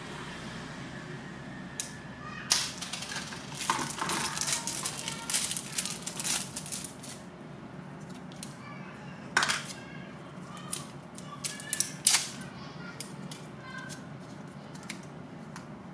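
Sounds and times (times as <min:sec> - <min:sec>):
plastic wrapper crinkling: 0:02.8 - 0:07.2.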